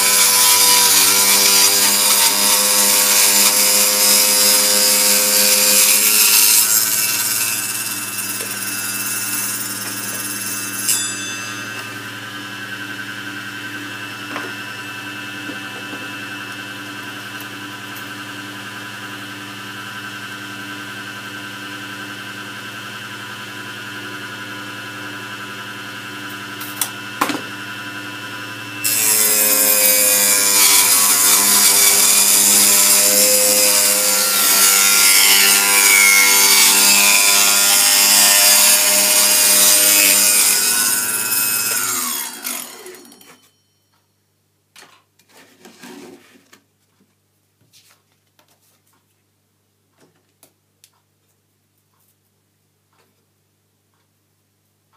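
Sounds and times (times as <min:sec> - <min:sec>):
saw cutting plywood: 0:00.0 - 0:18.2, 0:28.8 - 0:43.4, 0:45.3 - 0:46.4
table saw whining: 0:00.0 - 0:43.6.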